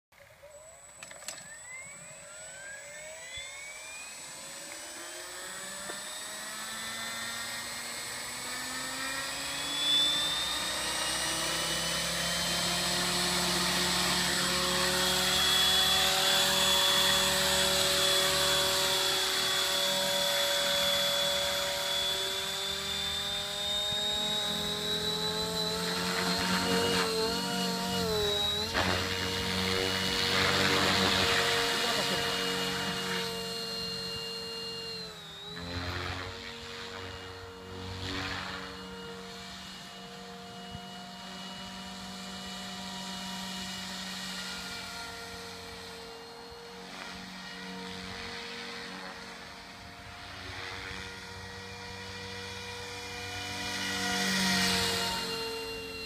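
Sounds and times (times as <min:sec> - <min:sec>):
electric helicopter rotor whine: 0:00.2 - 0:56.0.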